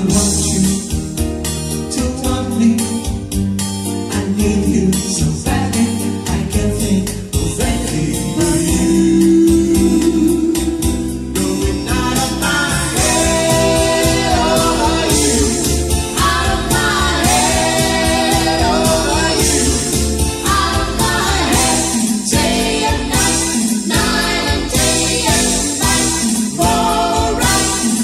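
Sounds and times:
instrumental accompaniment with beat: 0.0 - 28.0
women singing into microphones: 13.0 - 28.0.

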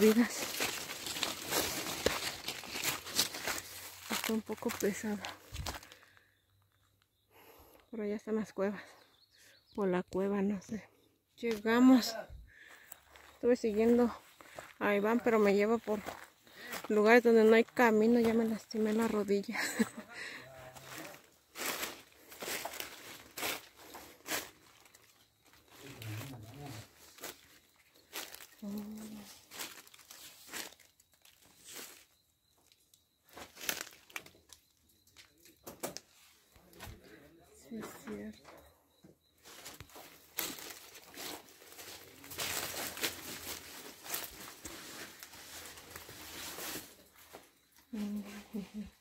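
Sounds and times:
footsteps crunching dry leaves: 0.0 - 6.0, 12.6 - 14.8, 15.4 - 16.9, 19.9 - 32.1, 33.3 - 34.3, 39.4 - 47.6.

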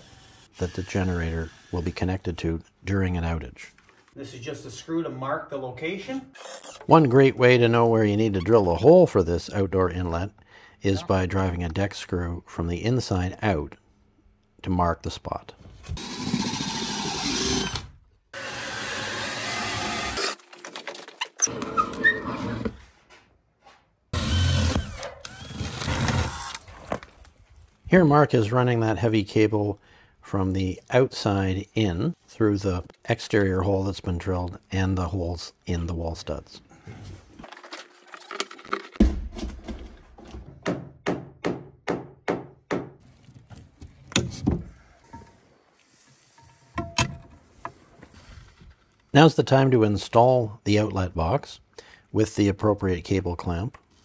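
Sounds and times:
cordless drill boring wood: 0.0 - 2.0, 16.0 - 17.8, 18.4 - 20.4, 24.2 - 26.6.

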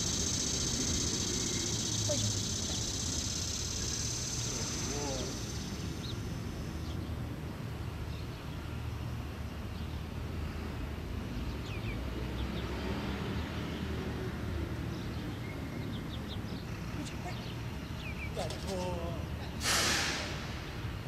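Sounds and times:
faint bird chirps: 0.0 - 6.2.

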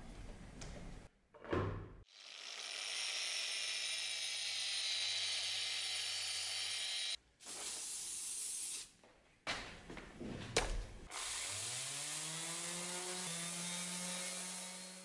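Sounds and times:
aerosol spray hiss: 7.4 - 8.9.

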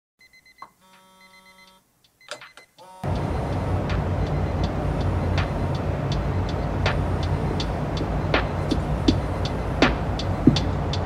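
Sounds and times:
city traffic rumble: 3.0 - 11.0.

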